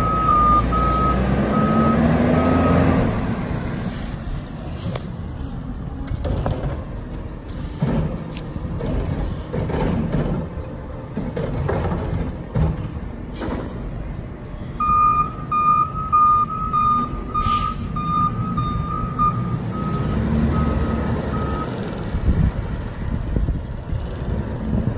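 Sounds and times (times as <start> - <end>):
reverse alarm beeping: 0.0 - 2.8, 14.8 - 21.7
garbage truck diesel engine: 0.0 - 24.9.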